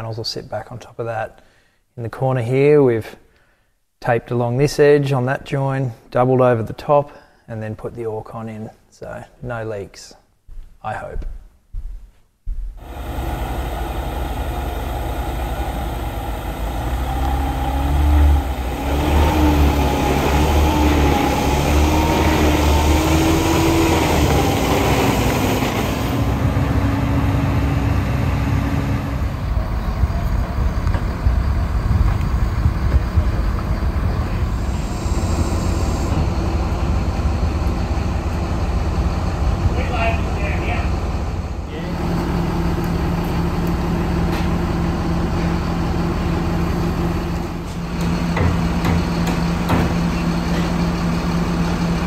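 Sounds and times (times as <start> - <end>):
steady diesel engine running: 12.8 - 52.0
truck diesel engine running: 12.8 - 52.0.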